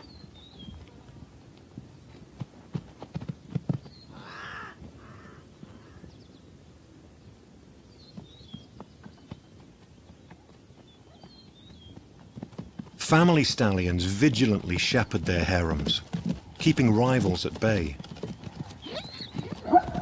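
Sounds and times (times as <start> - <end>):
hooves thudding and stamping: 0.0 - 5.1, 8.0 - 20.0
harsh animal calls: 4.1 - 6.0
faint high bird chirps: 18.8 - 20.0.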